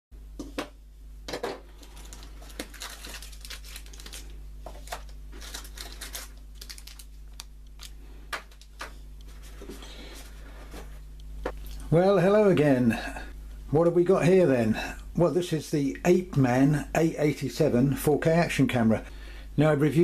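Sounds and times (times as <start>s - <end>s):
steady low hum: 0.2s - 20.0s
plastic bags rustling and crinkling: 1.7s - 11.0s.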